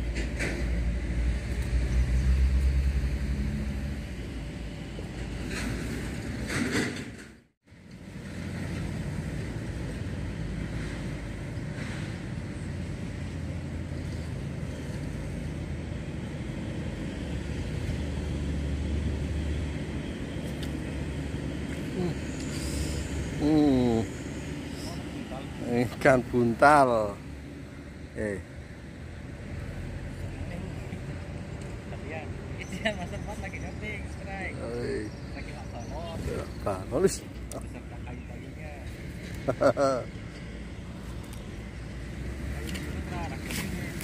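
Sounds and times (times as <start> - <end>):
vehicle engine rumble: 0.0 - 44.0.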